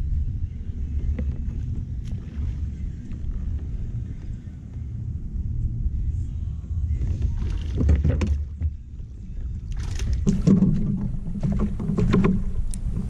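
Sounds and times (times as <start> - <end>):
wind buffeting microphone: 0.0 - 13.0
water splashing and knocking: 7.2 - 8.8, 9.8 - 13.0.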